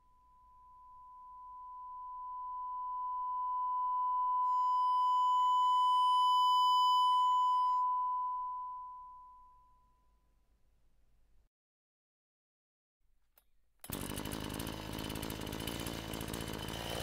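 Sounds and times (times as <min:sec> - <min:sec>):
sine test tone: 0:00.0 - 0:10.3.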